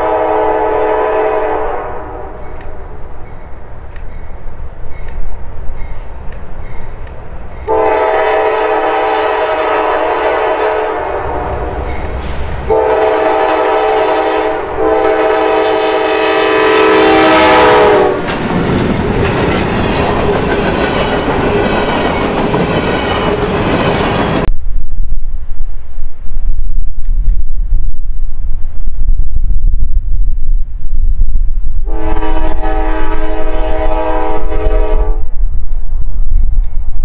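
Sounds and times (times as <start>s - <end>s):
locomotive air horn blasts: 0.0s - 2.4s, 7.7s - 11.8s, 12.7s - 18.2s, 31.9s - 35.3s
train rushing and clattering on rails: 1.0s - 24.5s, 31.9s - 37.0s
wind buffeting microphone: 8.3s - 37.0s.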